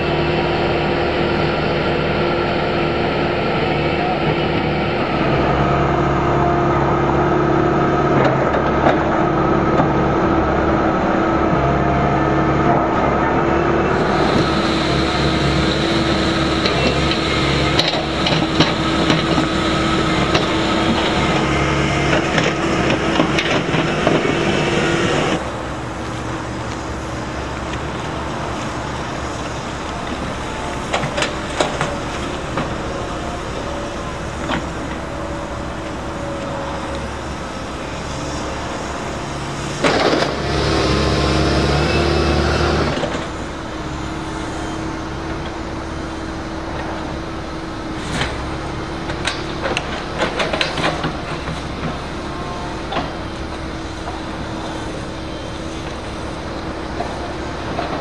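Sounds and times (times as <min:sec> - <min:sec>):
excavator diesel engine humming: 0:00.0 - 0:58.0.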